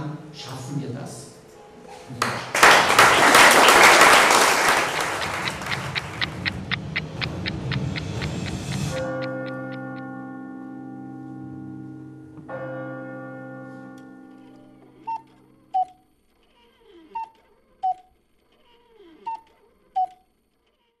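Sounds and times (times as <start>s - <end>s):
pitched clock ticks: 4.8s - 10.2s, 15.1s - 16.0s, 17.2s - 18.1s
sustained music chords: 4.8s - 15.7s.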